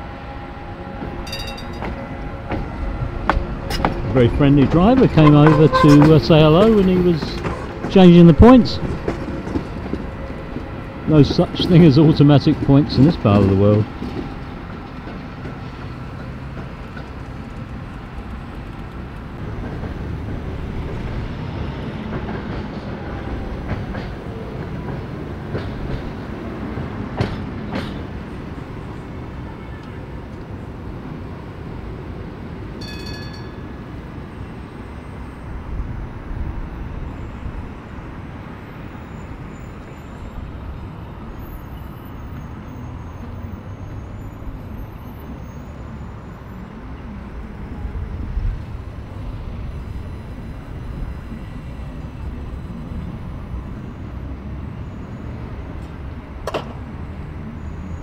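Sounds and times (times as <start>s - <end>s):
street noise: 0.0s - 58.0s
tram running on track: 0.0s - 58.0s
tram wheels clanking: 1.0s - 28.8s.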